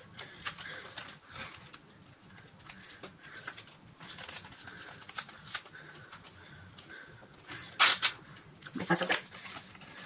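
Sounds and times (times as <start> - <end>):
paper envelope rustling: 2.4 - 6.4, 8.8 - 10.0.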